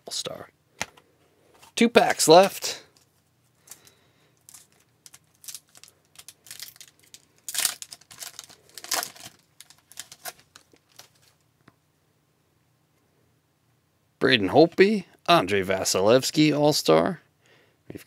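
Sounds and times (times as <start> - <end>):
foil wrapper tearing and crinkling: 4.5 - 11.3.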